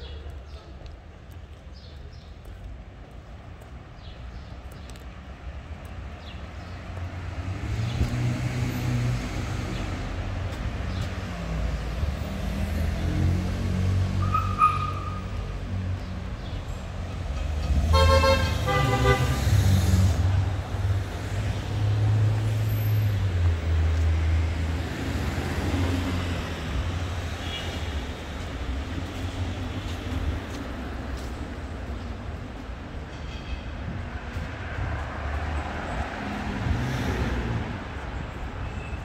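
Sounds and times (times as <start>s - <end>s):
vehicle engines rumbling: 0.0s - 39.0s
car horn honking: 17.9s - 19.4s.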